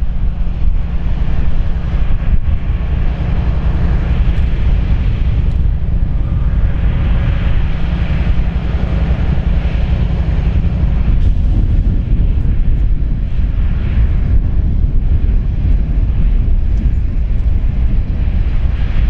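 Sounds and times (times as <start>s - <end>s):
train rumbling past: 0.0s - 19.0s
wheels hissing on rail: 0.0s - 19.0s
wind buffeting microphone: 0.0s - 19.0s.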